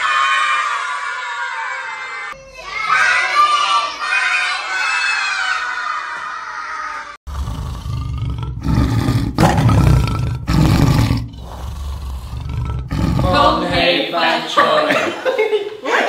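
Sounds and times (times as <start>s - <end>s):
tiger roaring: 7.3s - 13.7s.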